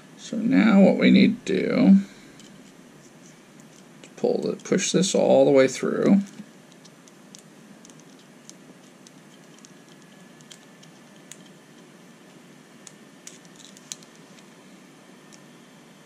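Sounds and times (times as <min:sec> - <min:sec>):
low room hiss: 0:00.0 - 0:16.0
small plastic parts clicking: 0:06.2 - 0:11.9, 0:12.8 - 0:14.5.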